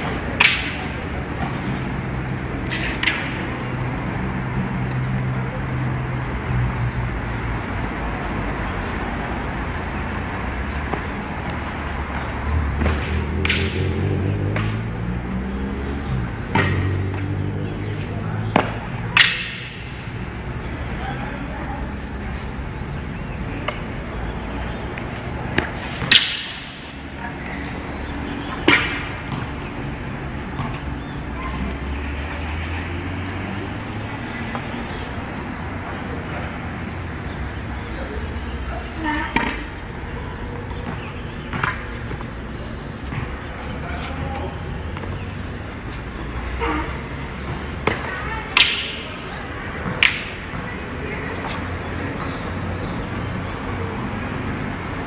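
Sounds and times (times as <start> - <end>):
staff striking with sharp cracks: 0.0 - 1.0, 12.8 - 14.8, 18.6 - 20.0, 25.6 - 27.0, 28.6 - 29.3, 47.8 - 49.0.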